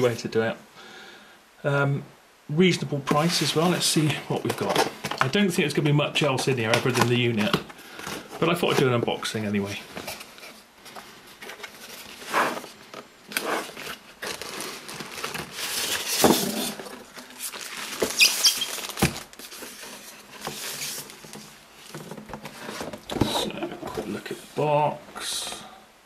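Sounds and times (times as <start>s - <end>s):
cardboard scraping: 3.1s - 5.9s, 6.6s - 24.6s
plastic wrap crinkling: 3.1s - 24.2s.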